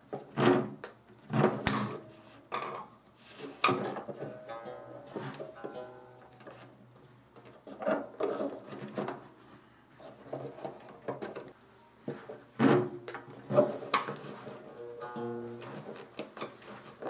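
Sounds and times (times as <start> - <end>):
hands handling instrument strings: 0.9 - 9.4, 10.0 - 17.0
plucked string ringing: 4.3 - 6.6, 14.8 - 15.9.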